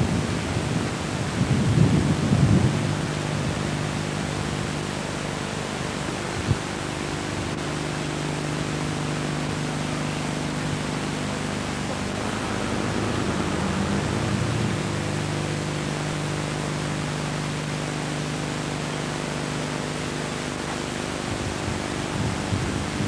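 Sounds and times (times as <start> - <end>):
tape hiss and hum: 0.0 - 23.0
cars rolling past: 11.8 - 15.4.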